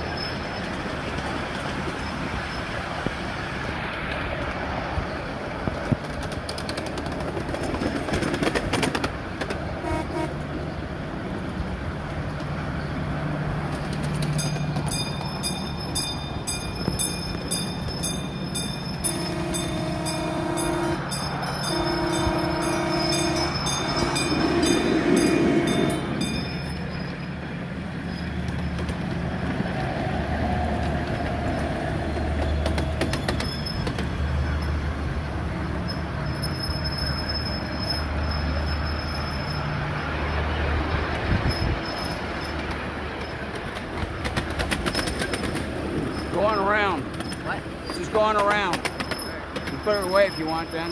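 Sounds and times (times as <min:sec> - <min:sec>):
train wheels rumbling on track: 0:00.0 - 0:50.9
train horn blasts: 0:09.8 - 0:10.4, 0:19.0 - 0:26.2.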